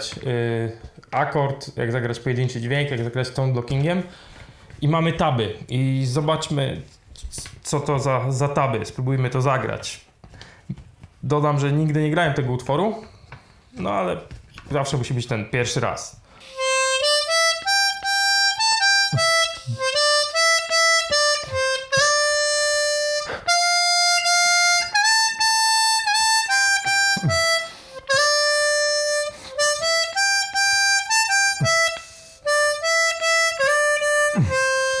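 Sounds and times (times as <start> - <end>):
breaths: 4.1 - 4.8, 10.2 - 10.8, 13.0 - 13.8, 16.2 - 16.6, 23.2 - 23.6, 27.7 - 28.0, 29.3 - 29.6, 32.0 - 32.5
harmonica melody: 16.4 - 35.0.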